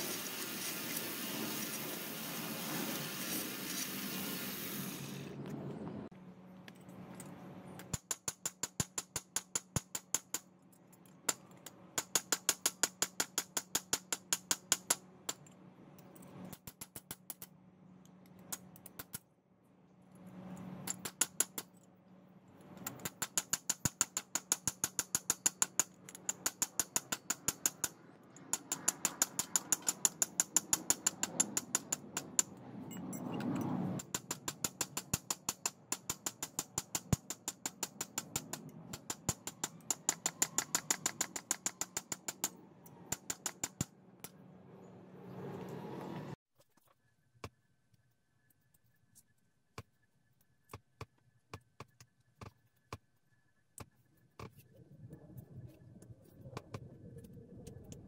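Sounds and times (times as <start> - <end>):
hammer tapping metal: 22.8 - 32.5.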